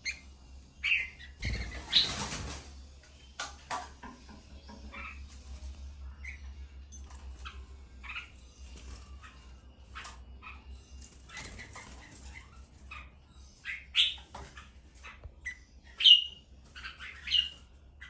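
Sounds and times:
bird chirps and calls: 0.0s - 2.3s, 6.1s - 18.0s.

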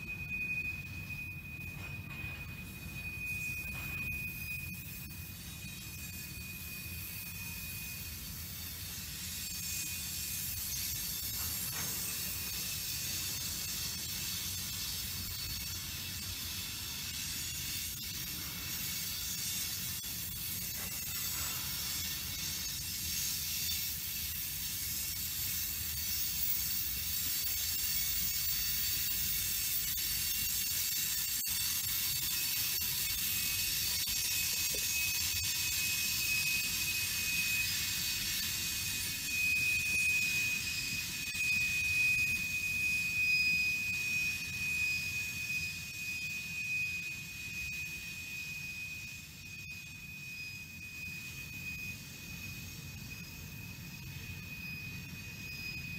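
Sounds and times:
high-pitched squeal: 0.0s - 55.9s.

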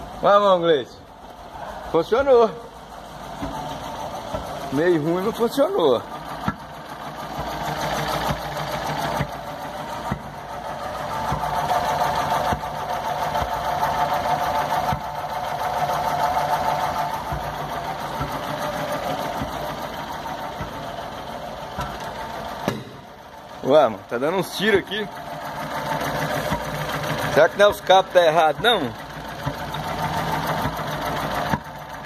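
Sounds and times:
engine running rough: 0.0s - 32.0s
sharp misfire pops: 6.2s - 15.3s, 16.1s - 23.5s.

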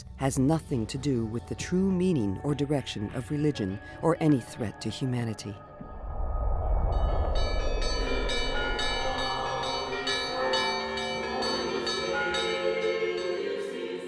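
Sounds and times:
church bells ringing: 6.9s - 14.0s.

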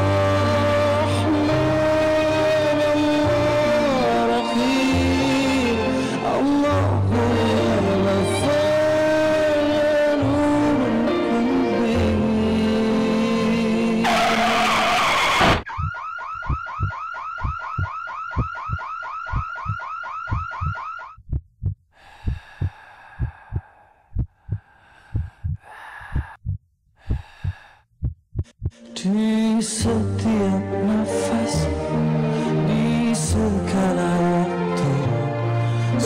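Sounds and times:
music: 0.0s - 14.4s, 28.8s - 36.0s
tyre screech: 14.0s - 15.8s
car alarm whooping: 14.0s - 21.2s
heartbeat thumps: 15.8s - 28.8s.

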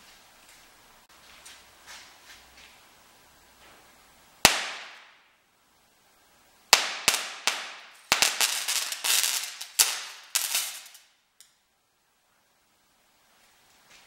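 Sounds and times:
sharp electric cracks of capacitor arcing: 4.4s - 5.4s, 6.7s - 11.6s.

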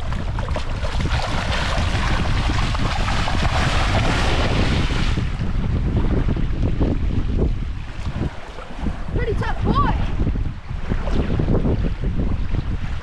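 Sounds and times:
shark splashing in water: 0.0s - 5.4s
wind on microphone: 0.0s - 13.0s.

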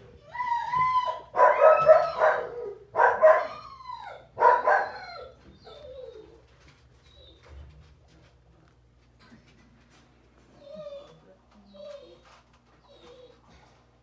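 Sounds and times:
puppies yipping and whining: 0.1s - 7.7s, 10.6s - 13.7s.

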